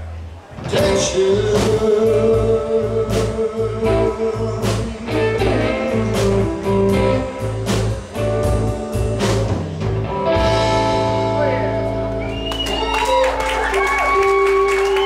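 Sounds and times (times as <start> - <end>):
live rock band playing: 0.2 - 15.0
drum and cymbal hits: 0.7 - 11.2
guitar chord ringing: 10.2 - 12.2.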